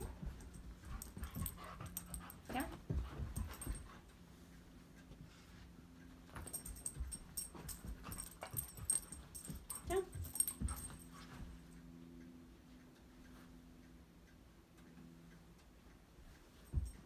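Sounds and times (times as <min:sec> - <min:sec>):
dog paws clicking and collar jingling: 0:00.0 - 0:12.0, 0:16.4 - 0:17.0.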